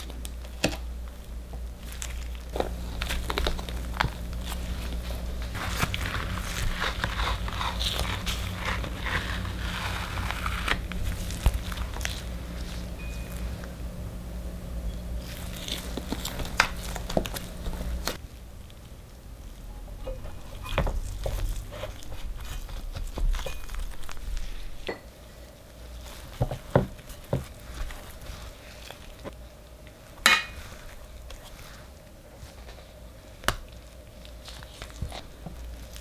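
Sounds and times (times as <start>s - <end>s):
low hum: 0.0s - 26.2s
scraper scraping cake: 1.8s - 12.9s, 15.2s - 18.2s, 20.4s - 24.8s.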